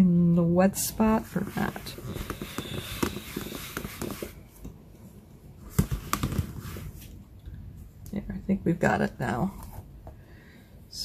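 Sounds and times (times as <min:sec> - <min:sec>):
stamp scrubbing on pads: 0:01.2 - 0:04.4.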